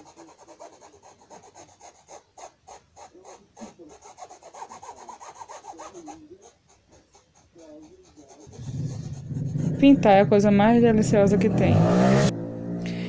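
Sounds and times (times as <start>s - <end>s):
paintbrush rubbing on fabric: 0.0s - 9.9s.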